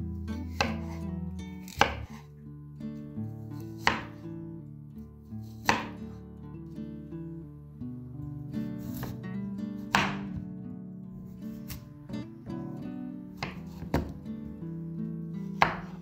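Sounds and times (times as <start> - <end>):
guitar music: 0.0 - 16.0
knife chopping on wooden board: 0.5 - 1.0, 1.6 - 2.2, 3.6 - 4.2, 5.6 - 6.0, 8.8 - 9.2, 9.9 - 10.4, 11.6 - 11.8, 13.4 - 14.2, 15.5 - 16.0.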